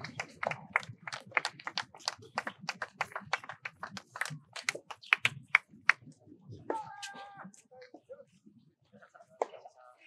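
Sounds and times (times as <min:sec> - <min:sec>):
people clapping: 0:00.0 - 0:06.1.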